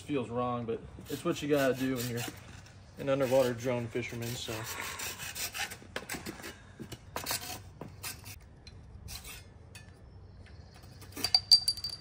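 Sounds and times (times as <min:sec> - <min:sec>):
hacksaw scraping through rod: 0:01.1 - 0:06.6.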